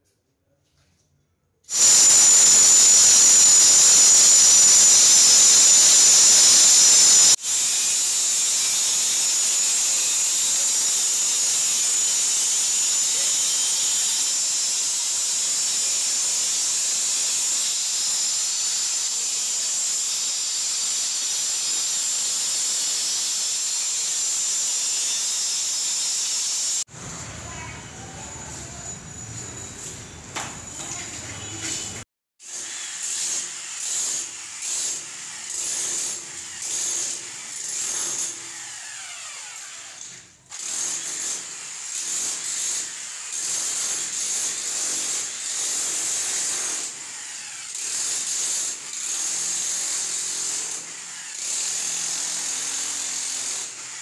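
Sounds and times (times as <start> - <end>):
electric stone cutter whining: 1.7 - 17.8.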